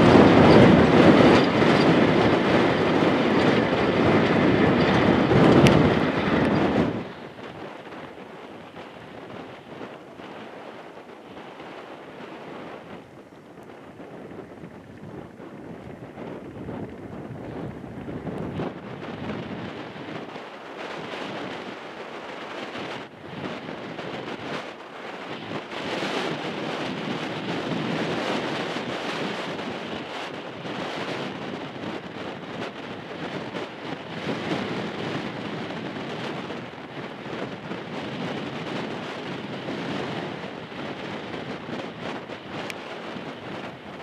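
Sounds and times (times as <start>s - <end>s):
tractor engine rumbling: 0.0s - 30.8s
wind buffeting microphone: 0.0s - 44.0s.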